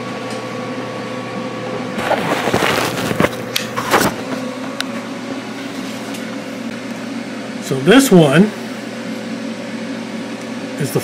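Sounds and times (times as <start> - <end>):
steady machine hum: 0.0 - 11.0.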